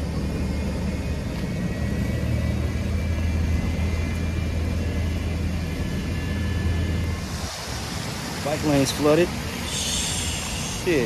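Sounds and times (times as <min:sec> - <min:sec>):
traffic rumble: 0:00.0 - 0:11.0
rain hissing: 0:07.0 - 0:11.0.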